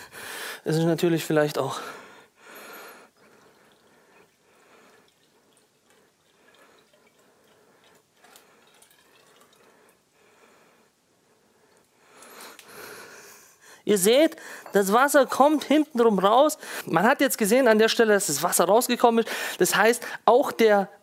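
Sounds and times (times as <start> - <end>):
water trickling and dripping: 3.1 - 10.0.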